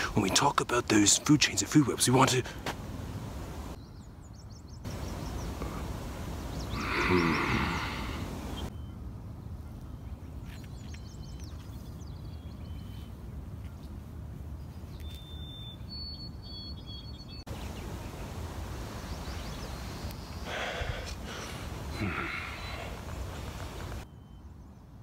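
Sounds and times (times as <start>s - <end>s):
small birds chirping: 3.2s - 25.0s
wind rumbling on microphone: 17.5s - 24.0s.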